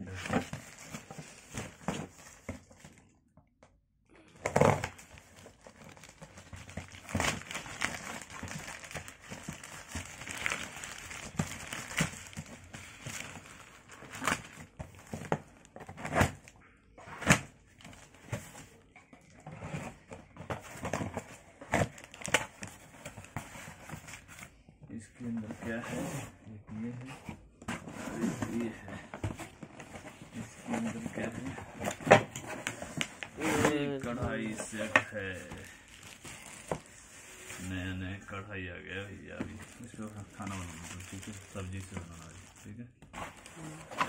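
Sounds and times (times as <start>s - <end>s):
plastic bag crinkling and tearing: 4.5s - 15.2s, 32.6s - 36.8s, 39.3s - 42.8s.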